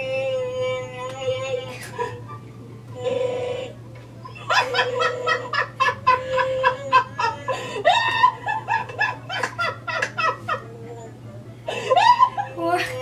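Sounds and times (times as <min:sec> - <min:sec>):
woman laughing: 0:04.3 - 0:11.1, 0:11.7 - 0:13.0.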